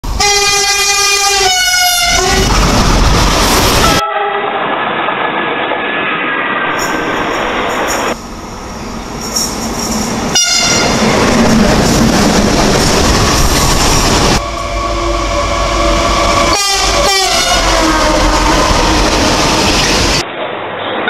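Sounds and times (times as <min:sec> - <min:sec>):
trains passing with rumble: 0:00.0 - 0:21.0
locomotive horn chord: 0:00.2 - 0:02.5, 0:03.8 - 0:04.6, 0:10.3 - 0:11.0, 0:14.4 - 0:19.0.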